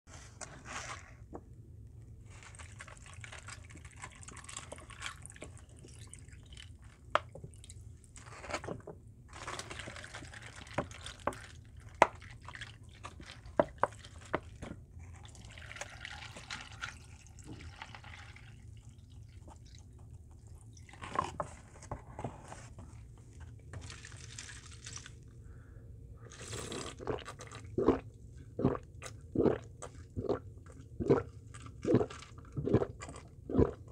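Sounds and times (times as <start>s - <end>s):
loud gulps: 26.3s - 28.0s, 28.6s - 33.9s.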